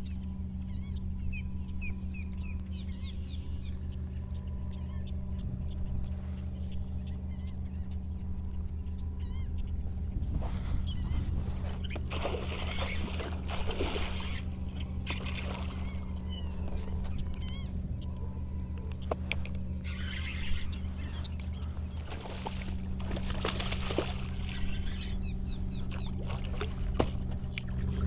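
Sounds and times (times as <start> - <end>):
low motor hum: 0.0 - 28.0
fish splashing in water: 11.8 - 16.1, 21.9 - 25.1, 25.8 - 28.0.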